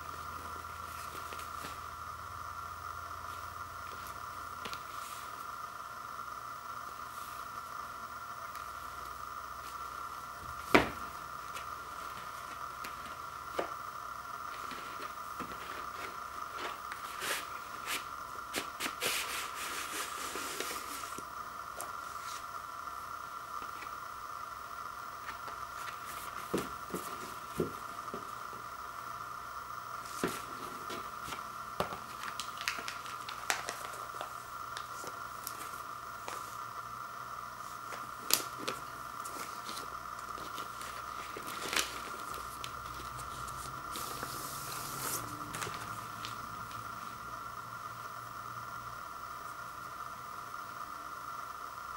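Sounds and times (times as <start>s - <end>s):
paper sleeve rustling: 14.5s - 21.2s, 30.0s - 36.6s, 37.6s - 46.4s
paper and cardboard rustling: 37.9s - 46.0s.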